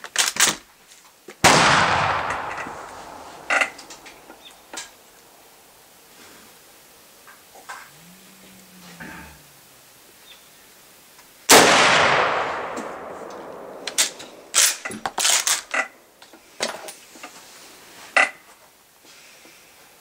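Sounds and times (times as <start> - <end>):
rifle shot: 1.4 - 5.0, 11.5 - 15.7.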